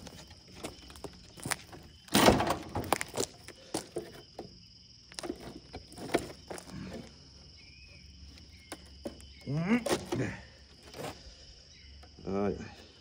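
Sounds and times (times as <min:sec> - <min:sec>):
wooden boards knocking together: 0:00.0 - 0:07.1, 0:08.7 - 0:11.2
wood scraping: 0:00.0 - 0:12.2.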